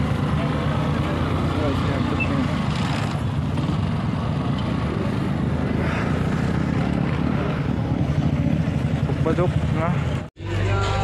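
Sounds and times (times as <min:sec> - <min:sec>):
motorcycle engines rumbling: 0:00.0 - 0:11.0.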